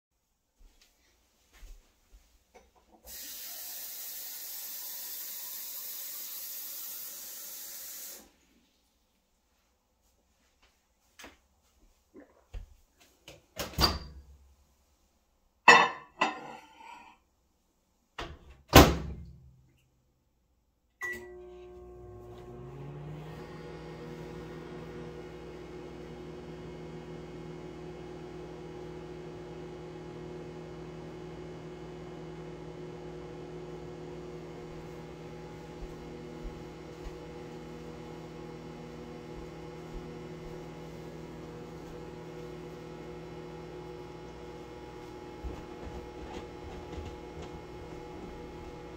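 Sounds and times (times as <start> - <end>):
microwave short beep: 21.0 - 21.4
microwave running hum: 21.0 - 48.9.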